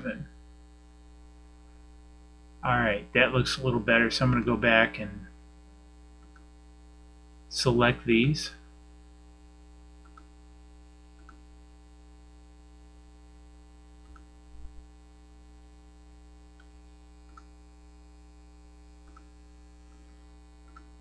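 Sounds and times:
low electrical hum: 0.0s - 21.0s
computer mouse clicks: 6.2s - 6.5s, 10.0s - 10.3s, 11.2s - 11.4s, 14.0s - 14.3s, 17.3s - 17.5s, 19.0s - 19.3s, 19.9s - 21.0s.

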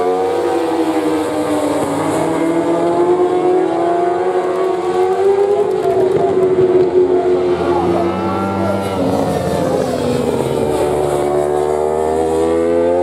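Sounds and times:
motorbike engines at high revs: 0.0s - 13.0s.

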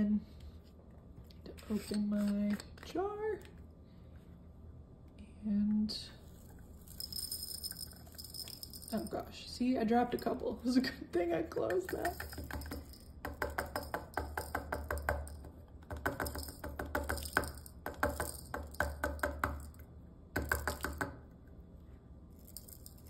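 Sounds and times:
plastic beads rattling into jar: 6.7s - 9.2s, 11.9s - 13.2s, 16.2s - 18.9s, 22.4s - 23.0s.

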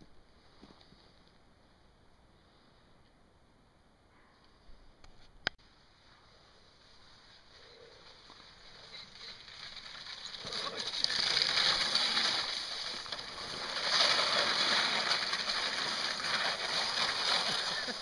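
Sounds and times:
sled runners scraping on ice: 7.8s - 18.0s.

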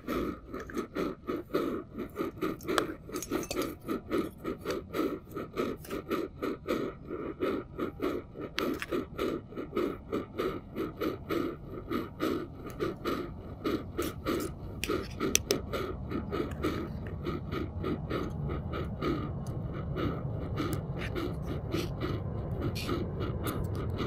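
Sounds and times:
hand coffee grinder grinding: 0.0s - 6.1s, 8.5s - 9.2s, 13.9s - 17.1s.

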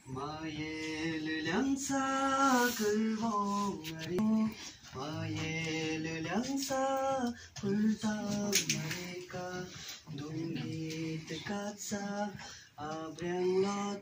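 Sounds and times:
voices singing slow melody: 0.0s - 14.0s.

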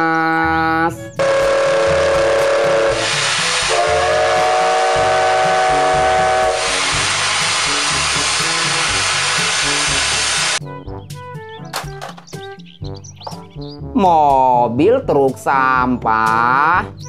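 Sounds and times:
steam hissing: 1.2s - 10.6s
steam locomotive whistle: 1.2s - 10.6s.

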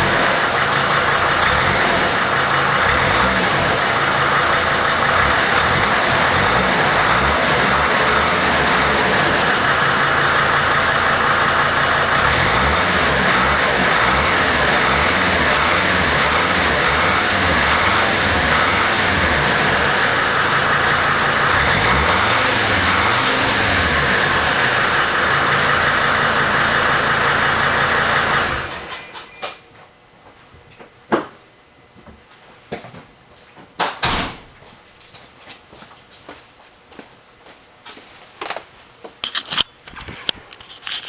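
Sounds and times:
diesel engine exhaust revving: 0.0s - 29.0s.

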